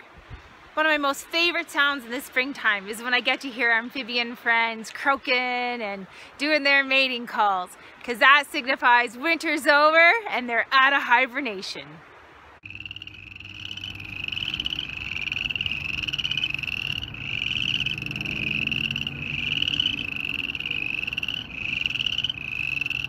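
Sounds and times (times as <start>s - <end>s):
frogs calling: 12.6s - 23.0s.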